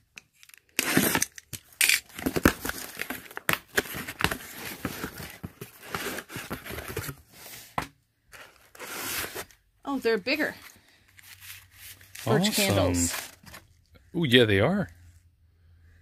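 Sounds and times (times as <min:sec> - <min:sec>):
box cutter slitting tape: 0:00.6 - 0:02.8
cardboard scraping and rustling: 0:02.1 - 0:09.6, 0:11.4 - 0:13.7.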